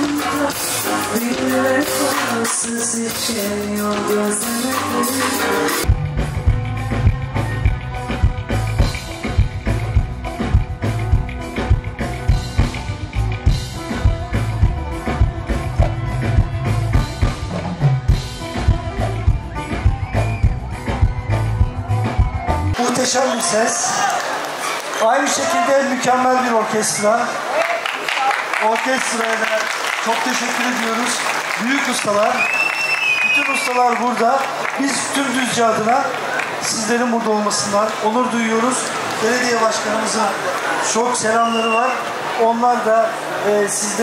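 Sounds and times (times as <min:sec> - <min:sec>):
music with bass and drum beat: 0:00.0 - 0:22.8.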